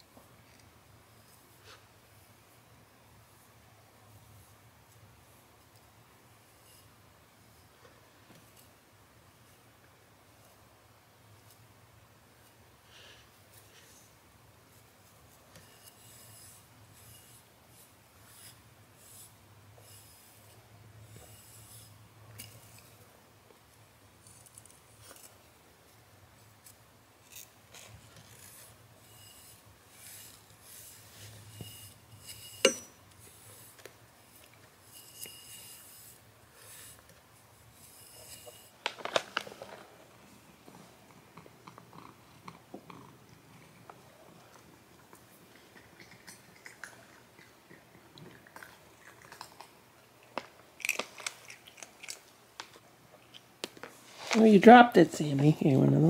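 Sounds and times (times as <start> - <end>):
brush rasping through fur: 14.8 - 23.0, 26.6 - 38.8
rustling: 24.2 - 41.3, 53.6 - 56.0.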